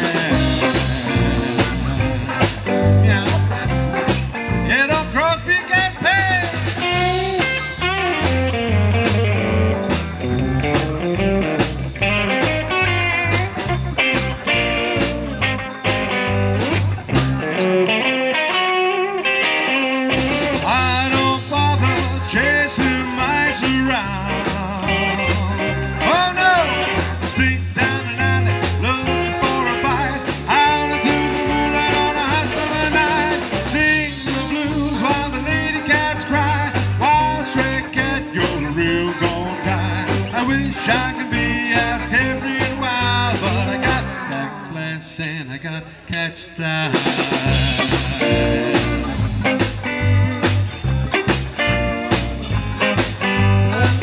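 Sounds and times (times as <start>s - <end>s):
man singing lead: 0.0s - 9.2s, 20.5s - 49.7s, 53.2s - 54.0s
live rockabilly band: 0.0s - 54.0s.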